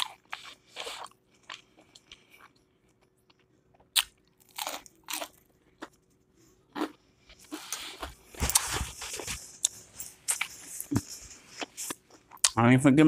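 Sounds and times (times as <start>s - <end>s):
crunchy food chewing: 0.0s - 6.1s.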